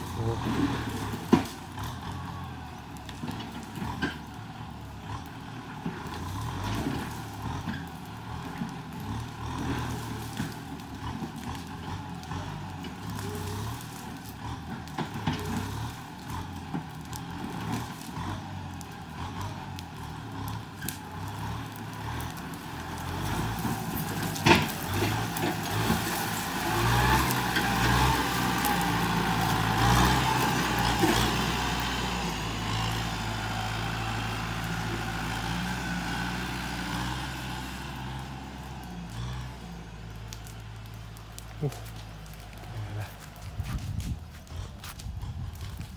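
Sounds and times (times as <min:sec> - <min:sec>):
tractor diesel engine under load: 0:00.0 - 0:45.9.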